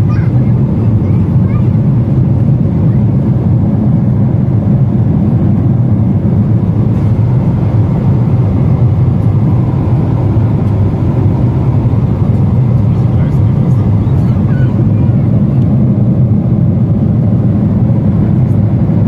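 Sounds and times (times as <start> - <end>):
jet engines roaring: 0.0 - 19.0
air rushing past fuselage: 3.7 - 18.2.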